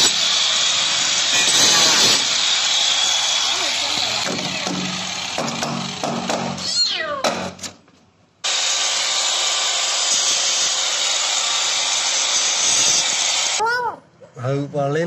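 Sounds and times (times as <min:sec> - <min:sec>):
angle grinder cutting pipe: 0:00.0 - 0:06.8, 0:08.4 - 0:13.6
kitten meowing inside drainpipe: 0:06.6 - 0:07.2.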